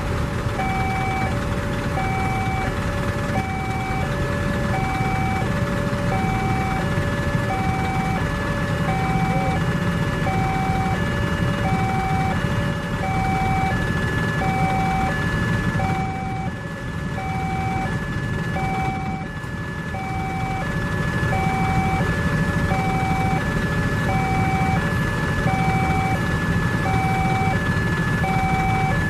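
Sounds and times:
vehicle engines idling: 0.0s - 29.0s
level crossing alarm two-tone: 0.6s - 29.0s.

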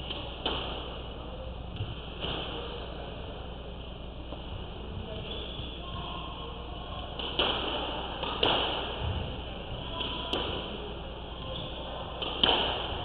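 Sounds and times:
squash ball hitting rackets and walls: 0.0s - 2.6s, 7.2s - 13.0s.

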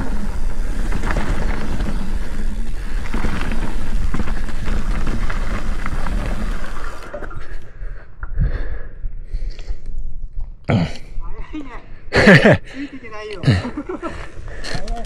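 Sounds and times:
bike tyres clattering on dirt: 0.0s - 7.6s.

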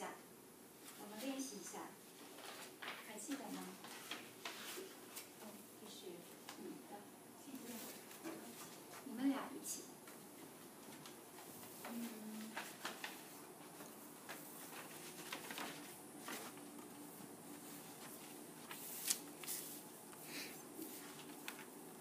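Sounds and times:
paper cards rustling: 2.1s - 5.5s, 10.1s - 22.0s.

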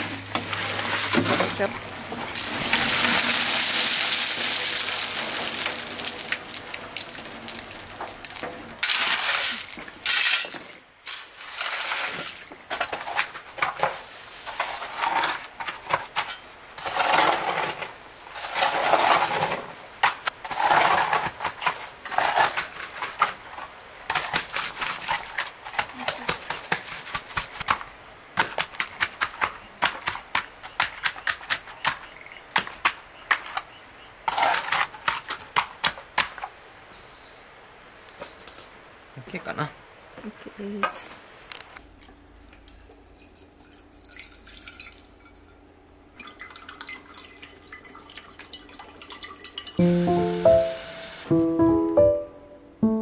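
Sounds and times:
wet concrete sliding out: 0.0s - 15.9s
hand float scraping wet concrete: 8.8s - 13.3s, 16.8s - 19.8s.

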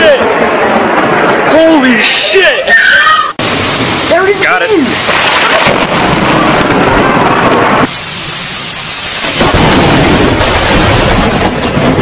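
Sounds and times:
steady rain hiss: 3.4s - 5.5s, 7.8s - 10.7s
thunder rumbling: 3.4s - 12.0s.

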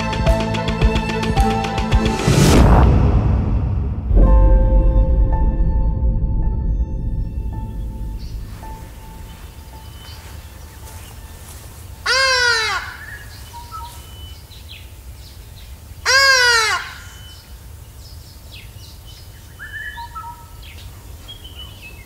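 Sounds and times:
ibis calling: 7.9s - 22.0s
small birds chirping: 7.9s - 22.0s.

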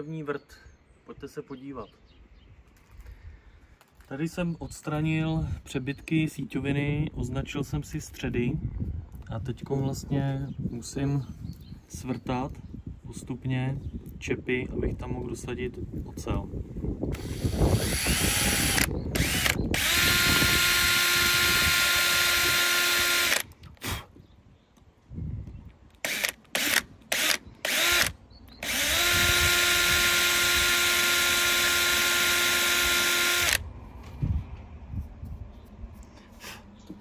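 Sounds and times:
electric drill boring: 17.1s - 23.5s, 26.0s - 33.6s.

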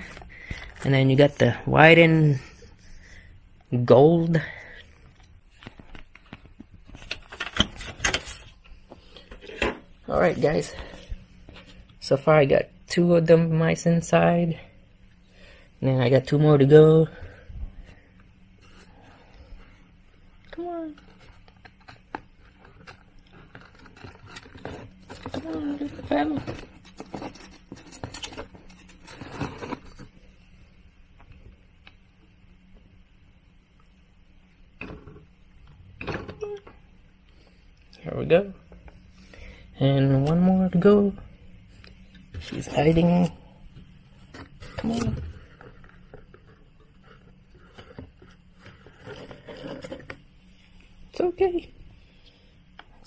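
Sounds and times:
hand rummaging in cardboard box: 20.9s - 30.2s.

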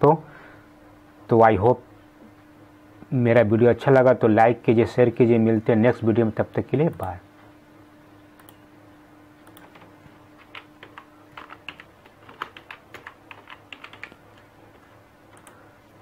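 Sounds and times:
faint steady hum: 0.0s - 16.0s
computer keys clicking: 8.4s - 8.6s, 9.4s - 15.6s.

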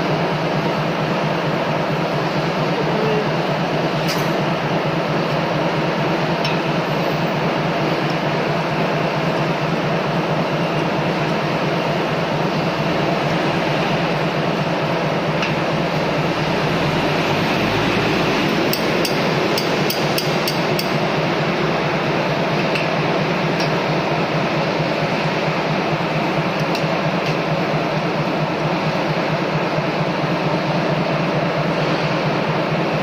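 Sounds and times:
machinery running: 0.0s - 33.0s.

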